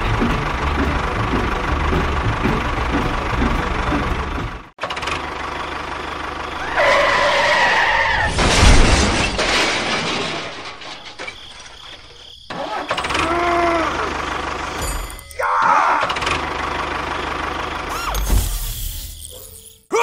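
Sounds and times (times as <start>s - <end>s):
small engine running: 0.0s - 7.3s, 12.5s - 15.2s, 16.0s - 19.8s.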